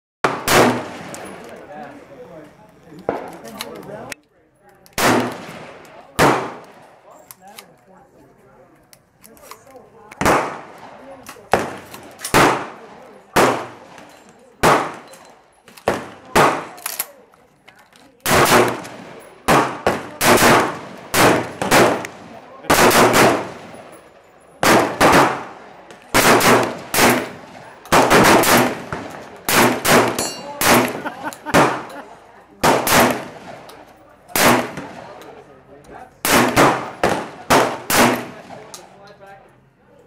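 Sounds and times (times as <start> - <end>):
shotgun shots: 0.2 - 1.4, 5.0 - 6.9, 10.2 - 15.1, 15.8 - 16.9, 18.2 - 23.9, 24.6 - 31.9, 32.6 - 33.7, 34.3 - 35.2, 36.2 - 38.7.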